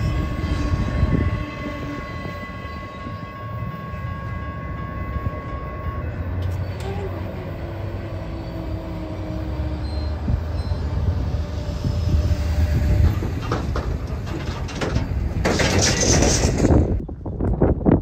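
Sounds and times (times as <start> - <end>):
thin squeal tones: 0.0 - 11.9
freight train rumble: 0.0 - 18.0
train wheel clicks: 13.0 - 17.0.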